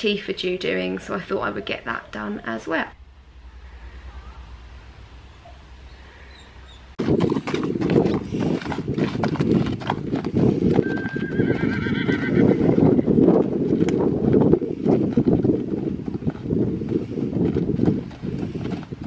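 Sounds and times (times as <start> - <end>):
wind on microphone: 6.3 - 19.0
hooves clip-clopping on dirt: 7.0 - 19.0
horse whinnying: 10.8 - 13.2.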